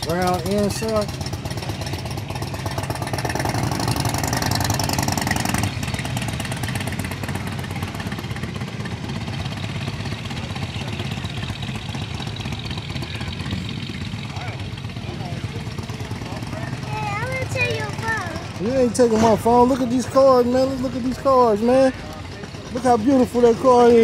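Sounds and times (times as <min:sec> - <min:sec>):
vehicle engine idling: 0:00.0 - 0:24.0.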